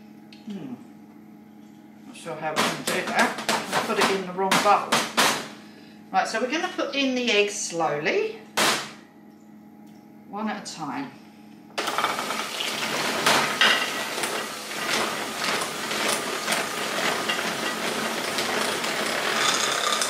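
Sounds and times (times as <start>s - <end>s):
electric hand mixer running: 11.8s - 20.0s.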